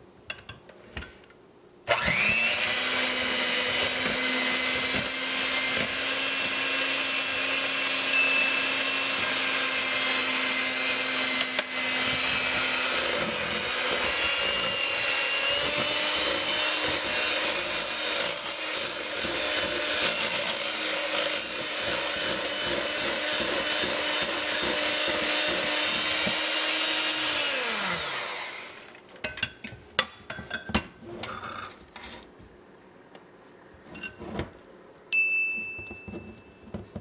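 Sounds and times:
electric hand mixer whine: 1.9 - 29.0.

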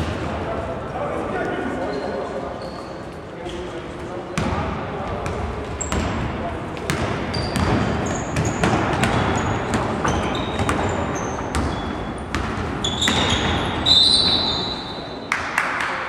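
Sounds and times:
shoe squeaks: 1.8 - 3.7, 7.3 - 15.2
basketball bouncing on court: 4.4 - 14.6.

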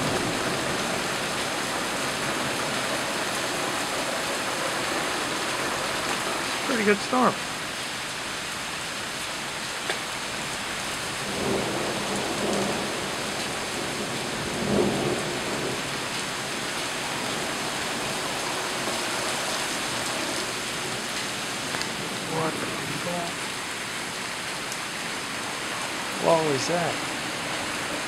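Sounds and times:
heavy rain pouring: 0.0 - 28.0.

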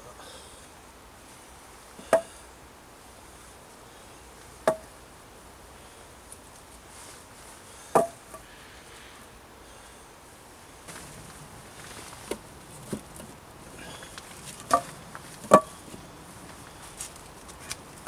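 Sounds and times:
wooden poles knocking: 4.6 - 4.9, 7.9 - 8.4, 14.4 - 15.8.

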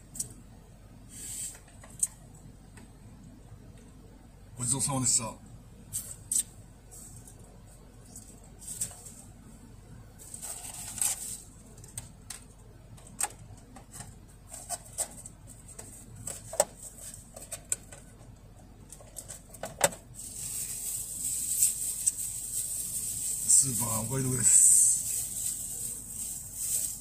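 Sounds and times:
steady hiss: 1.0 - 2.2, 20.1 - 27.0
plastic food packaging crinkling: 10.2 - 12.2, 20.2 - 27.0.

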